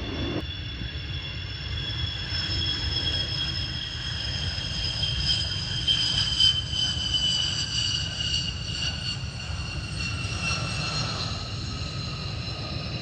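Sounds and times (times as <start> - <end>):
jet engine roar and whine: 0.0 - 13.0.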